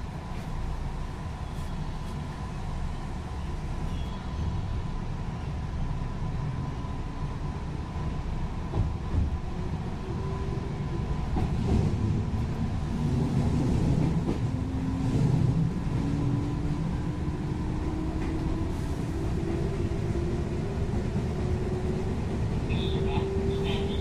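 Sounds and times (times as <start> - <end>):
train wheels rumbling on rails: 7.0 - 24.0.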